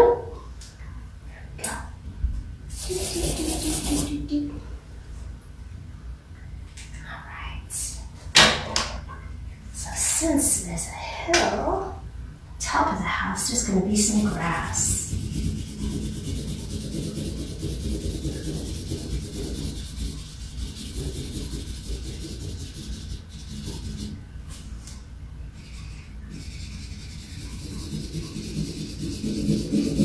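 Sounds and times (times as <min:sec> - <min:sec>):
marker scribbling on paper: 0:02.7 - 0:04.2, 0:13.5 - 0:24.2, 0:25.6 - 0:30.0.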